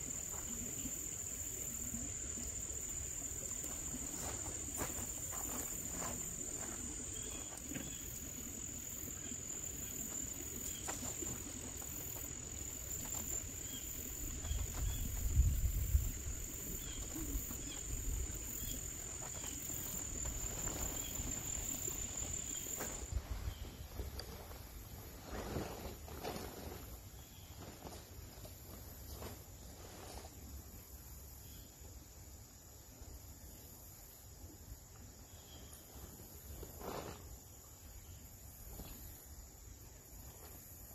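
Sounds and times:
insects trilling: 0.0 - 23.2.

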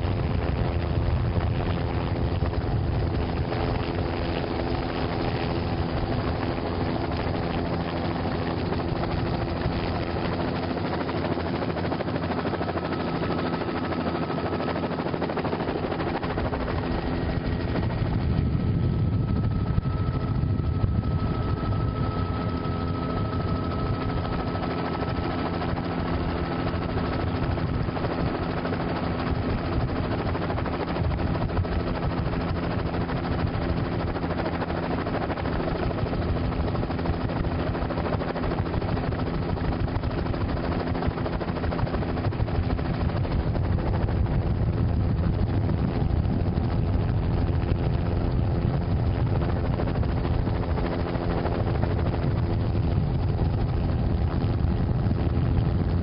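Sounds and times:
helicopter drone: 0.0 - 56.0.

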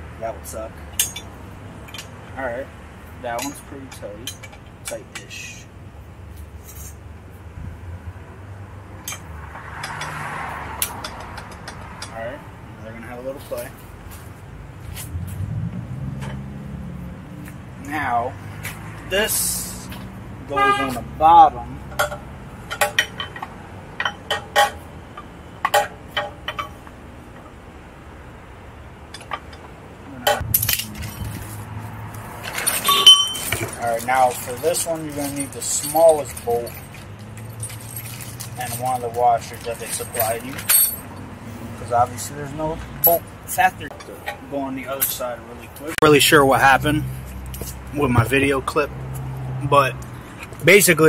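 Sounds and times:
metal parts clinking: 0.9 - 2.2, 30.3 - 41.3
rustle: 13.2 - 20.2, 29.2 - 43.2.

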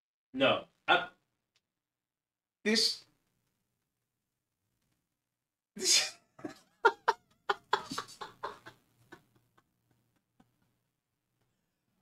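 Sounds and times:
man laughing hard: 5.8 - 10.7.

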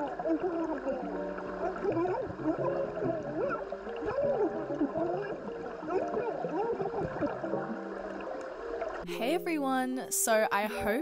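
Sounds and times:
woman talking underwater: 9.1 - 11.0.

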